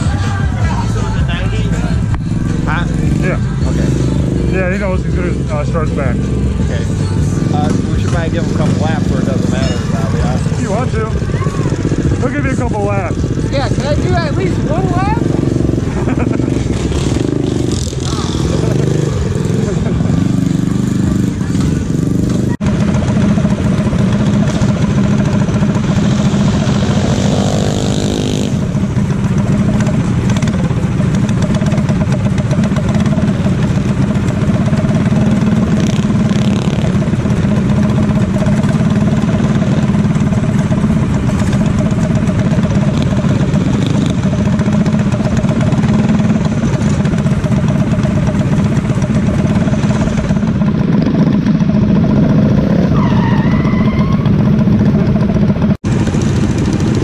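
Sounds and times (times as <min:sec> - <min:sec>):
mini bike engine idling: 0:00.0 - 0:57.0
engine revving up: 0:12.0 - 0:28.8, 0:34.8 - 0:47.0.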